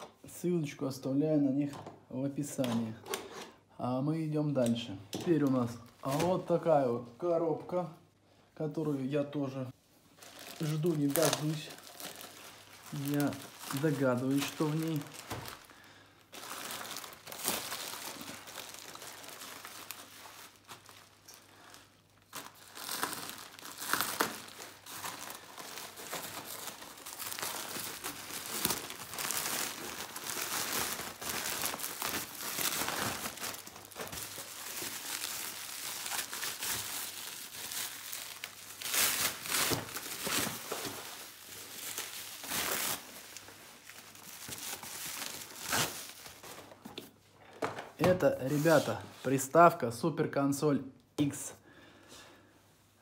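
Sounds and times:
plastic bag and bubble wrap crinkling: 4.4 - 7.8, 8.8 - 49.6.

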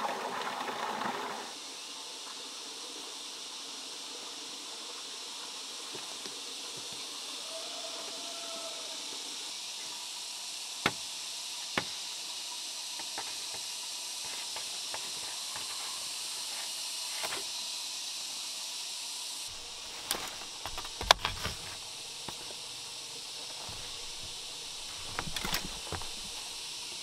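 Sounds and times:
steady high hiss: 1.5 - 27.0
vines clicking and snapping: 19.5 - 22.7, 23.3 - 26.8.

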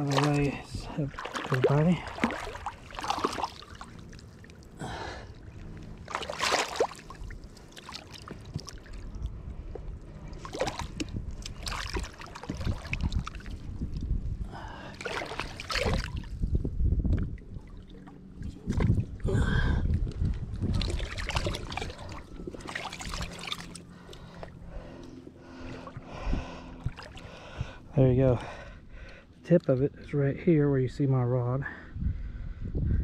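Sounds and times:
water splashing around wading legs: 0.0 - 9.3, 10.2 - 14.1, 14.7 - 16.5, 17.2 - 19.2, 20.5 - 27.6
low rumble: 0.0 - 33.0
heavy breathing: 4.8 - 5.4, 23.8 - 29.4.

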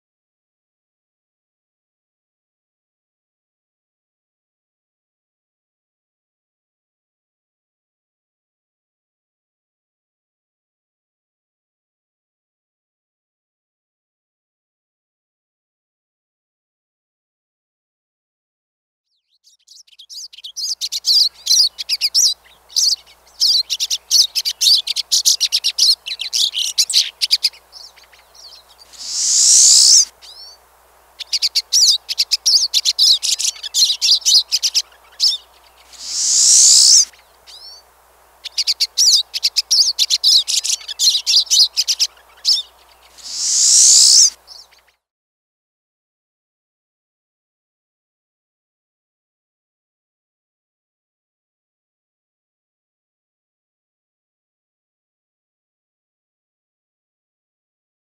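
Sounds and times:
bird twittering: 19.2 - 30.6, 31.2 - 45.0
buzzy upward bird note: 28.9 - 30.1, 35.9 - 37.1, 43.2 - 44.3.

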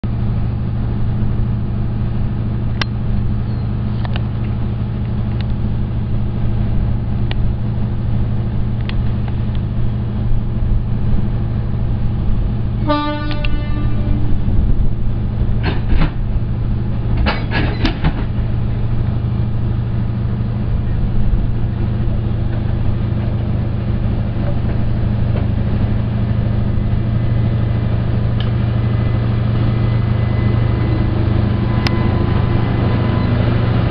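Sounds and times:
diesel locomotive droning: 0.0 - 33.9
train horn blast: 12.8 - 14.6.

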